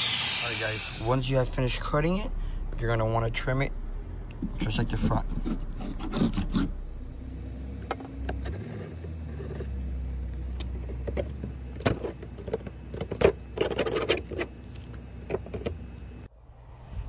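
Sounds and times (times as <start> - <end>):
knife scraping plastic: 5.0 - 6.8, 10.9 - 14.5.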